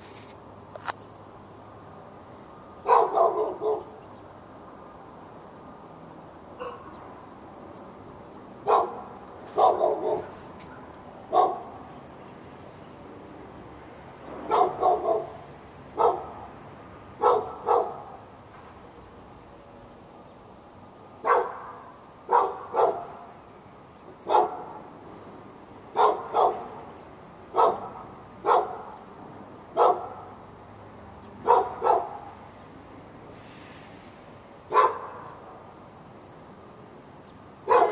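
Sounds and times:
dog barking: 0:02.8 - 0:04.0, 0:06.6 - 0:07.0, 0:08.6 - 0:11.8, 0:14.5 - 0:15.4, 0:16.0 - 0:16.5, 0:17.2 - 0:18.2, 0:21.2 - 0:23.2, 0:24.2 - 0:24.8, 0:25.9 - 0:26.8, 0:27.5 - 0:29.0, 0:29.8 - 0:30.3, 0:31.4 - 0:32.3, 0:34.7 - 0:35.4, 0:37.6 - 0:37.9.

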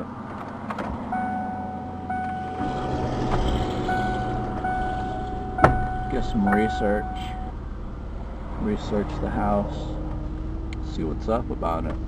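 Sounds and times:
low engine rumble: 0:00.0 - 0:12.0
car warning chime: 0:01.1 - 0:07.6.

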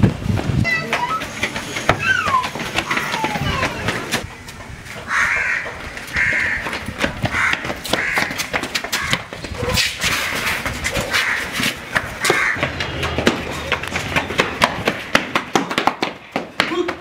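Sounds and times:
running footfalls: 0:00.0 - 0:17.0
crow cawing: 0:05.1 - 0:06.7, 0:07.3 - 0:09.3, 0:11.1 - 0:11.6, 0:12.2 - 0:12.6.

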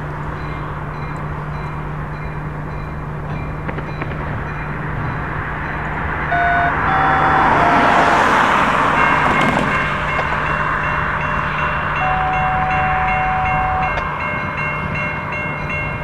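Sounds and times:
crossing bell dinging: 0:00.0 - 0:16.0
locomotive engine hum: 0:00.0 - 0:16.0
locomotive horn blasts: 0:06.3 - 0:09.2, 0:12.0 - 0:14.1.

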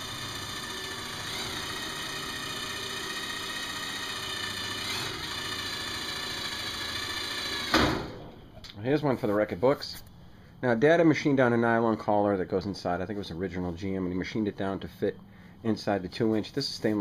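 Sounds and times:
mechanical drone: 0:00.0 - 0:08.4.

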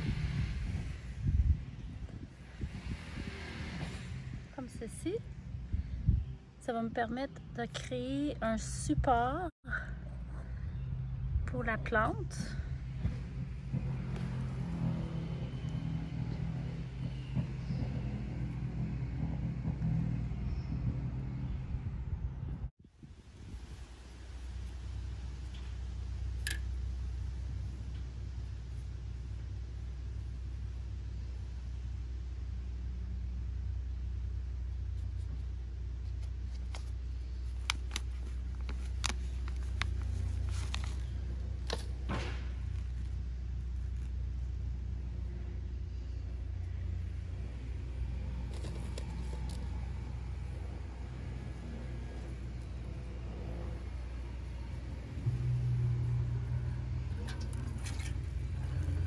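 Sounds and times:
low engine rumble with hum: 0:00.0 - 0:59.0
plastic pot crackling: 0:36.2 - 0:44.4.

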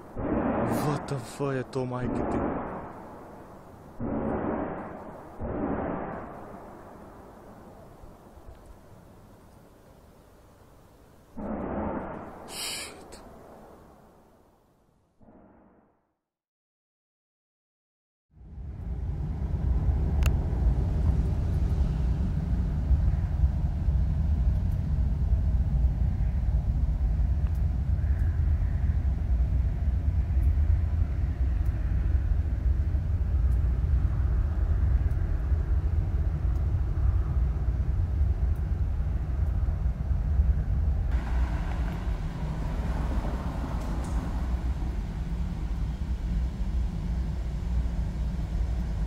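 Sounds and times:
low rumbling drone: 0:00.0 - 0:09.3, 0:11.3 - 0:14.4, 0:18.4 - 0:49.0
hissy noise: 0:12.4 - 0:13.2.

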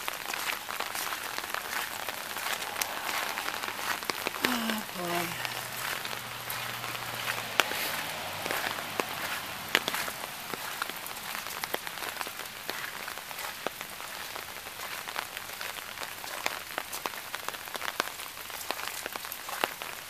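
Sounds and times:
rain falling: 0:00.0 - 0:20.0
raindrops ticking: 0:00.0 - 0:20.0.

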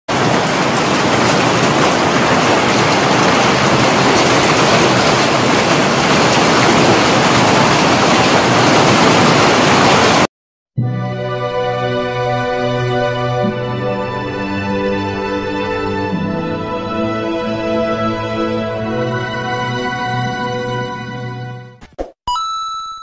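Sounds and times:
hail and rain pelting pavement: 0:00.1 - 0:10.3.

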